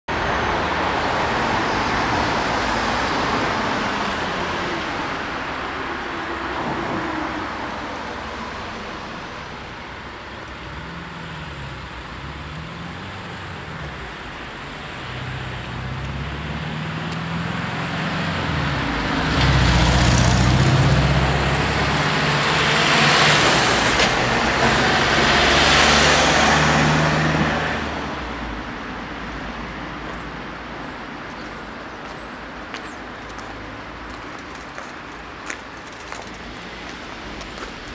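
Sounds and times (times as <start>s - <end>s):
cars driving past: 0.1s - 37.9s
engines running nearby: 0.1s - 37.9s.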